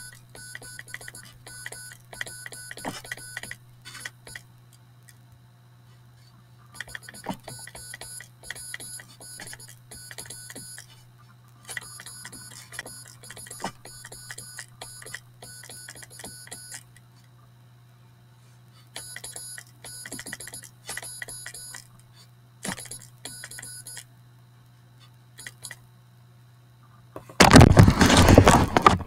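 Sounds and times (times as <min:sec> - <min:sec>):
buzzy morse code tones: 0:00.0 - 0:04.4, 0:06.8 - 0:10.9, 0:11.7 - 0:16.9, 0:19.0 - 0:21.8, 0:22.7 - 0:24.1.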